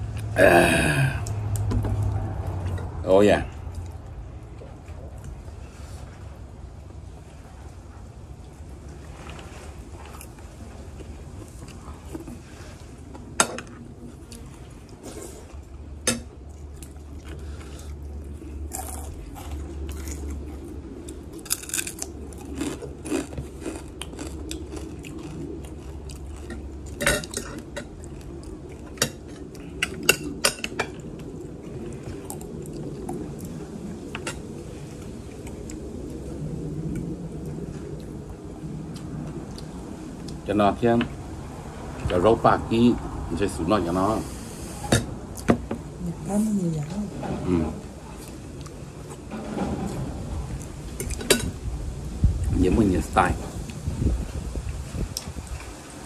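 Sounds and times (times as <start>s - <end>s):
low steady hum: 0.0s - 56.0s
chewing: 8.4s - 40.4s.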